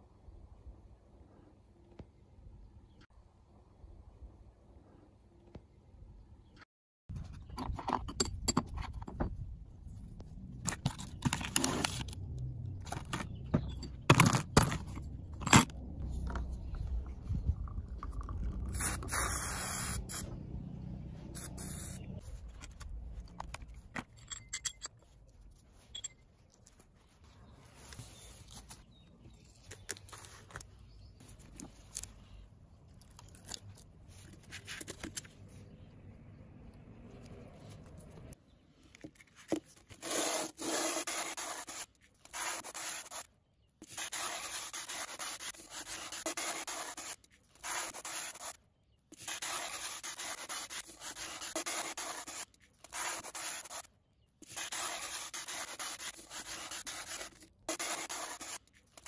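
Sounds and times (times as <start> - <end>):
metal hardware clicking and scraping: 23.5 - 25.2.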